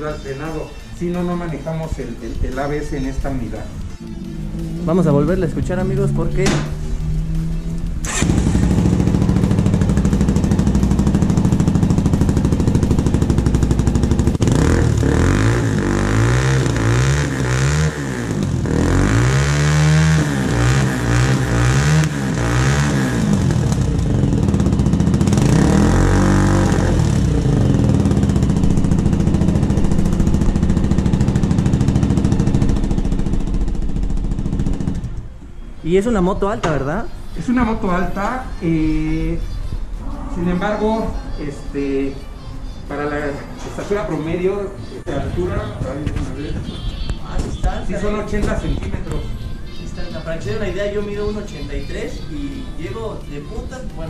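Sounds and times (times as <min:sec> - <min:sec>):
motorcycle engine idling with blips: 0:00.0 - 0:35.8
motorcycle engine starting: 0:02.4 - 0:35.4.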